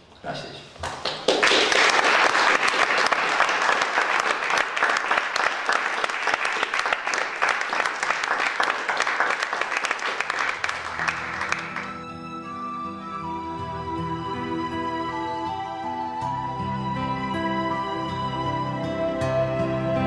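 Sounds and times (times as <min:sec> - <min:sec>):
audience applauding: 0:00.8 - 0:12.6
soft instrumental music: 0:10.7 - 0:20.0.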